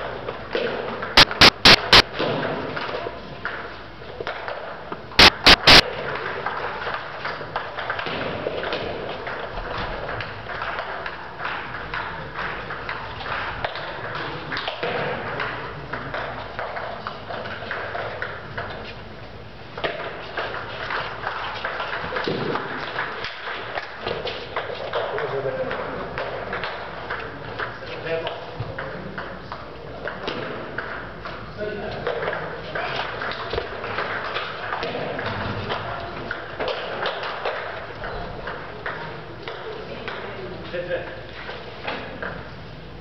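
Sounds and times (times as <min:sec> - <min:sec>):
loud distorted pings: 0:01.2 - 0:02.1, 0:05.2 - 0:05.8.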